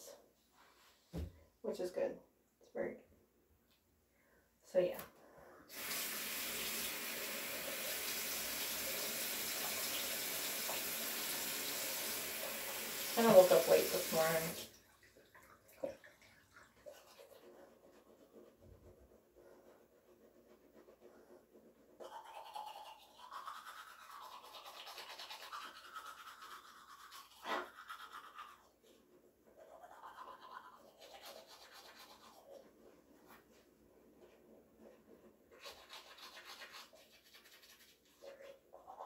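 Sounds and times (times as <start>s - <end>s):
toothbrush scrubbing teeth: 13.2s - 14.6s, 15.4s - 39.0s.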